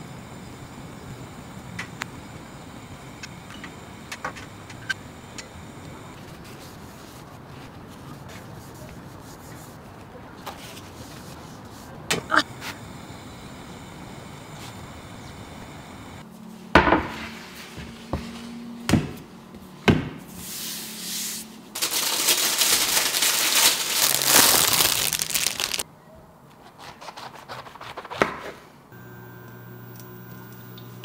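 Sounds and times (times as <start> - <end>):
steady low hum: 0.0 - 6.2, 12.2 - 16.3, 29.0 - 31.0
plastic wrapping crinkling: 21.8 - 25.8.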